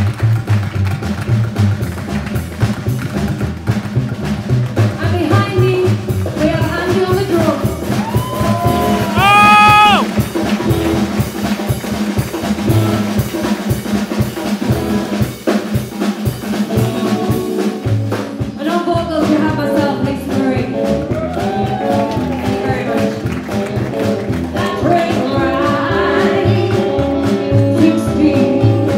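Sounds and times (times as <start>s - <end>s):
live band playing: 0.0s - 28.9s
woman singing: 5.0s - 8.2s, 18.6s - 20.8s, 24.5s - 28.9s.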